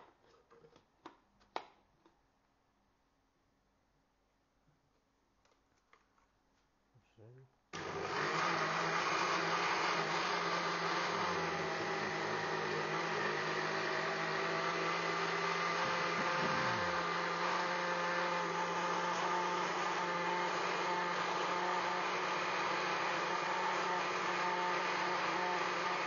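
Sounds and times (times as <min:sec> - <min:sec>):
blender motor running: 0:07.8 - 0:26.0.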